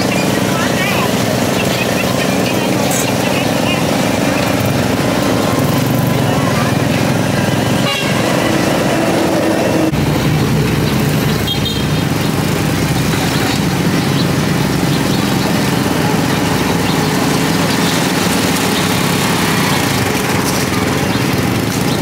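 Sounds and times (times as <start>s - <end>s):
car engines running: 0.0s - 22.0s
motorbike engines running: 0.0s - 22.0s
street noise: 0.0s - 22.0s.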